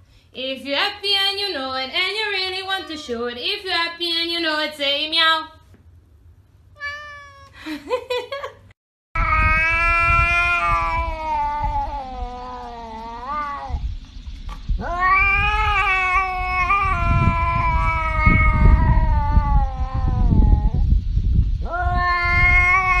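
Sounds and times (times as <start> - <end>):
cat yowling: 2.4 - 3.3, 6.8 - 7.6, 9.2 - 13.8, 14.8 - 20.8, 21.6 - 23.0
low rumbling noise: 9.2 - 23.0.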